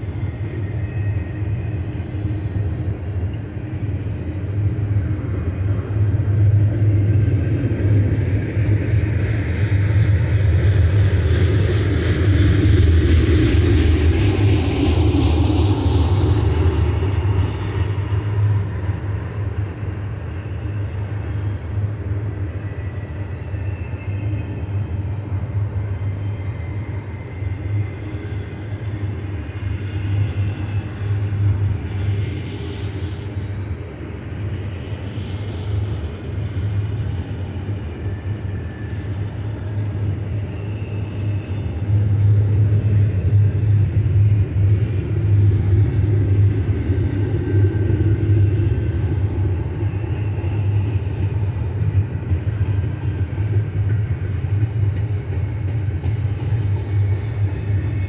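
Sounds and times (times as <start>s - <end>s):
steel wheels rolling on rail: 30.2s - 58.0s.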